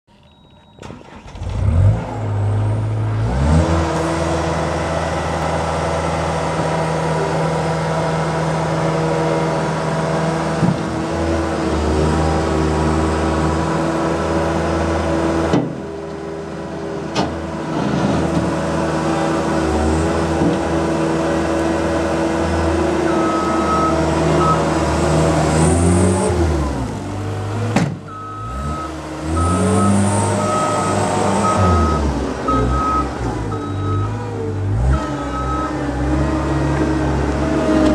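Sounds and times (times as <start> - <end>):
reversing alarm beeps: 0.1 - 0.9, 23.1 - 24.7, 28.1 - 34.2, 34.9 - 35.8
diesel engine revving: 0.8 - 37.9.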